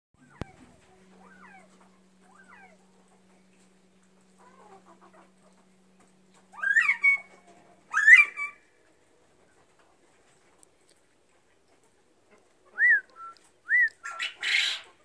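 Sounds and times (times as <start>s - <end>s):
quail chirps: 0.2s - 8.7s, 12.3s - 15.0s
quail calls sweeping upward: 6.5s - 8.7s, 12.7s - 15.0s.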